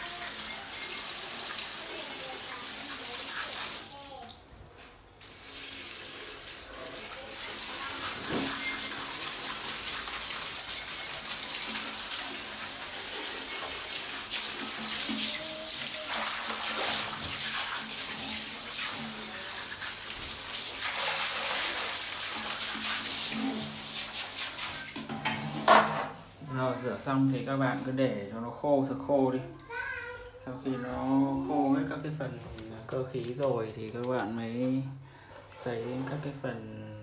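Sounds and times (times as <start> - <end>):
shower spray on tiled floor: 0.0 - 4.4, 5.2 - 25.1.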